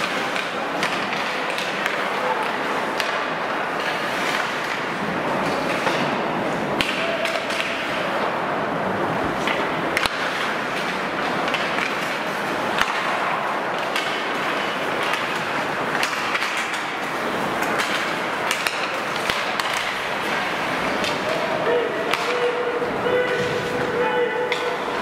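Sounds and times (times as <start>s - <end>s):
skates scraping on ice: 0.0s - 25.0s
sticks and puck clacking: 0.0s - 25.0s.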